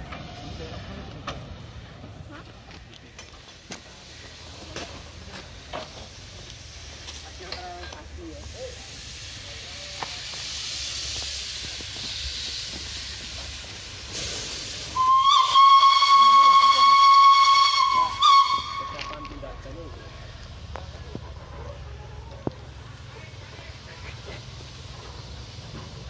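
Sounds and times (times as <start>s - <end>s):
steam locomotive venting steam: 0.0s - 26.0s
steam whistle blast: 15.0s - 19.3s.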